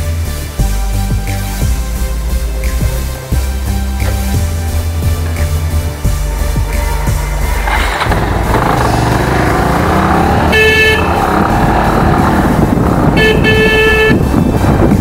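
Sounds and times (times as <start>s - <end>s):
motorbike engine and road noise: 1.5s - 15.0s
vehicle horn honking: 6.8s - 12.4s, 13.1s - 14.8s.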